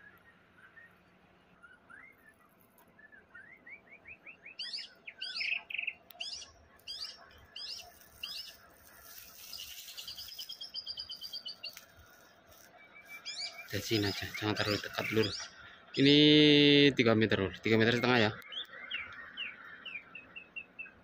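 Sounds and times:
bird singing whistled song: 0:00.0 - 0:08.6, 0:09.4 - 0:11.8, 0:12.8 - 0:15.5, 0:18.0 - 0:21.0.

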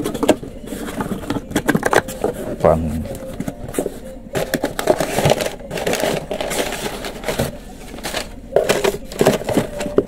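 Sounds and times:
packaging crackling and tearing: 0:04.4 - 0:10.0.

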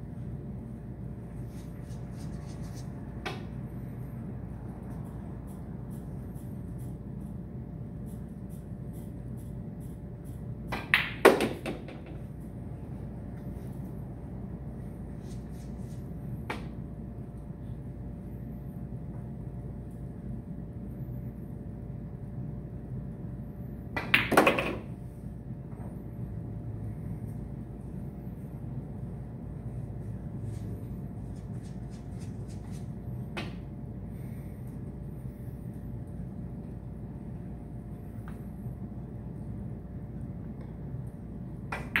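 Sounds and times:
low room hum: 0:00.0 - 0:42.0
cue striking cue ball: 0:24.0 - 0:24.9
pool balls clacking: 0:24.0 - 0:24.9.

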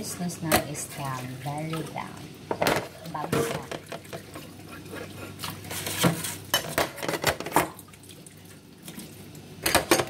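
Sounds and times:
running and splashing water: 0:00.8 - 0:02.3, 0:03.0 - 0:06.4, 0:07.6 - 0:09.4
dishes clattering in a sink: 0:02.5 - 0:07.8, 0:09.6 - 0:10.0.

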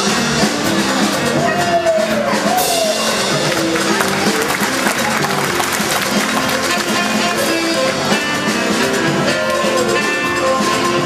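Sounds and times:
upbeat circus music: 0:00.0 - 0:11.0
sliding melody line: 0:02.6 - 0:11.0.

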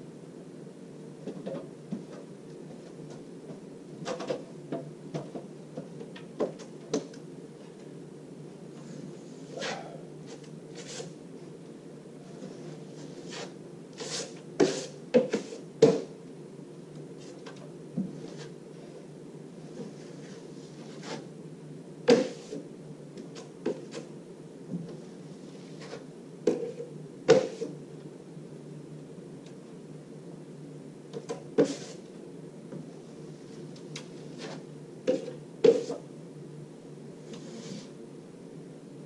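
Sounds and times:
steady low hum: 0:00.0 - 0:39.0
taping knife scraping compound: 0:13.0 - 0:16.0.

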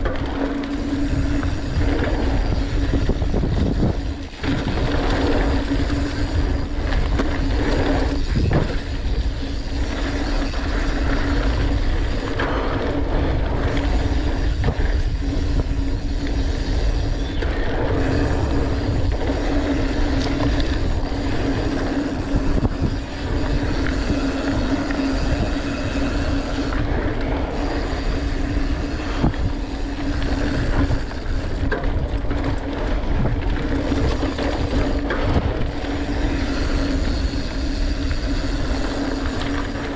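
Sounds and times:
bike knocks and rattles: 0:00.0 - 0:39.9
steady hum: 0:00.0 - 0:39.9
tyres rumbling on dirt: 0:00.0 - 0:39.9
wind on microphone: 0:00.0 - 0:39.9.

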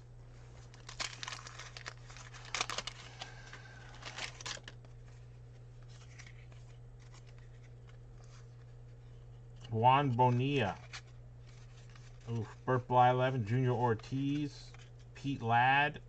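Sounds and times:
steady low hum: 0:00.0 - 0:16.0
paper wrapper tearing and crinkling: 0:00.6 - 0:05.2, 0:10.6 - 0:12.4.

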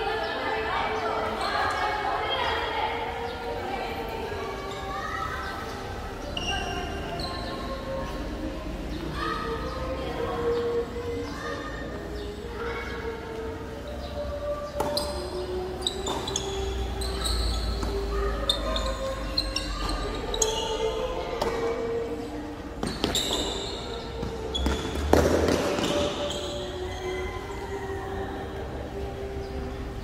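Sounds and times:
faint voices: 0:00.0 - 0:30.0
shoe squeaks: 0:06.3 - 0:07.8, 0:14.8 - 0:21.6, 0:22.8 - 0:27.6
tennis ball bounces: 0:14.8 - 0:15.3, 0:24.2 - 0:26.2.

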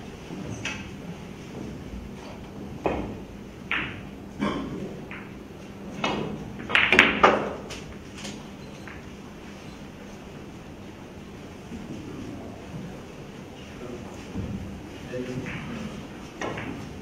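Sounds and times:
pool balls clicking: 0:00.4 - 0:09.2, 0:14.0 - 0:17.0
cue striking cue ball: 0:02.3 - 0:08.0.

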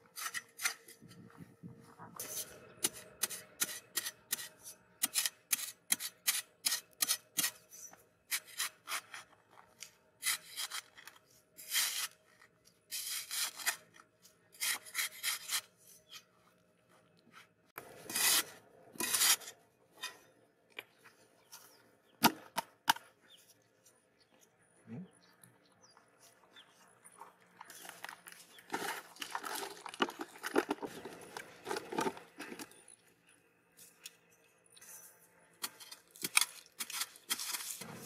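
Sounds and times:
spade scraping sandy soil: 0:00.0 - 0:01.0, 0:02.2 - 0:16.3, 0:17.8 - 0:20.3, 0:34.8 - 0:38.0.

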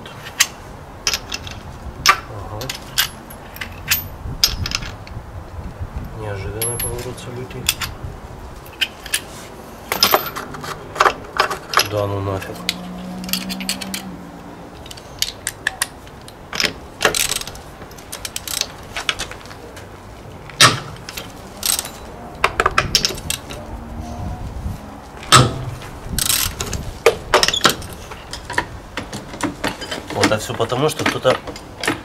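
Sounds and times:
metal hand tools clinking: 0:09.9 - 0:14.1, 0:21.0 - 0:23.6
sharp metal knocks: 0:25.3 - 0:32.0.

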